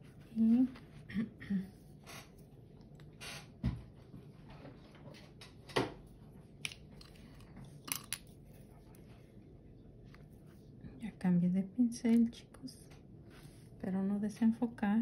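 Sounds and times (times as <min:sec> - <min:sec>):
small tools clicking and knocking: 0:06.7 - 0:08.3.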